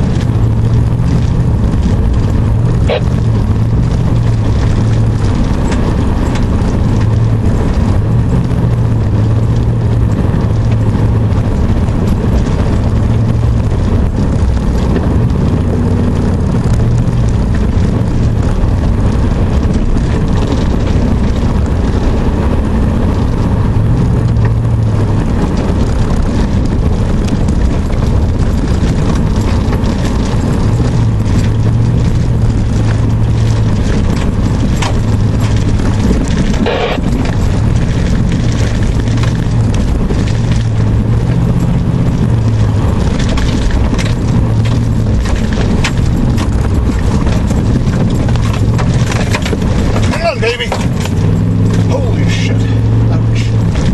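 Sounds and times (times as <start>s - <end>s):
truck engine running: 0.0s - 53.9s
tyre and road noise: 0.0s - 53.9s.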